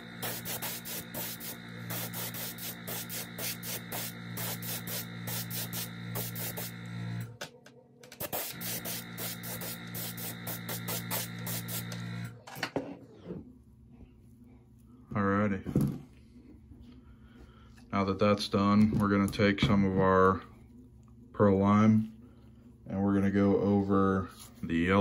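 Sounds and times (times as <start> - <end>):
airbrush spraying hiss: 0.0 - 6.9, 8.2 - 12.0.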